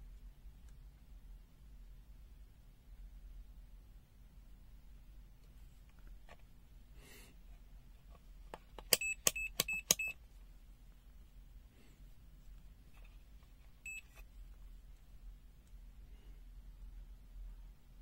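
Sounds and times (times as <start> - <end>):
multimeter short high beeps: 9.0 - 10.2, 13.9 - 14.2.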